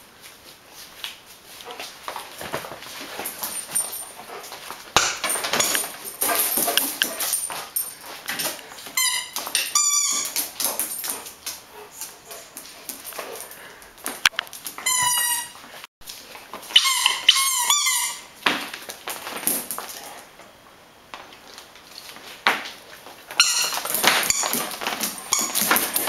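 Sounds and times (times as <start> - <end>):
dog squealing: 16.7 - 18.4.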